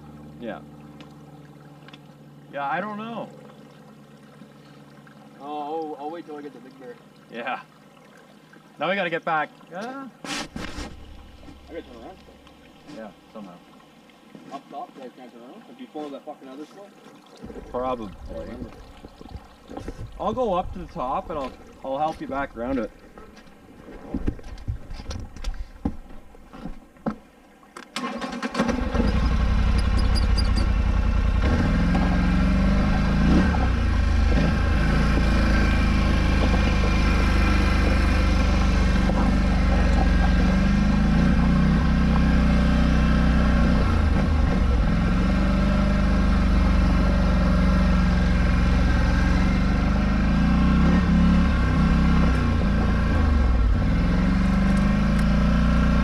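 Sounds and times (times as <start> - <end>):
quad engine revving: 28.0 - 56.0.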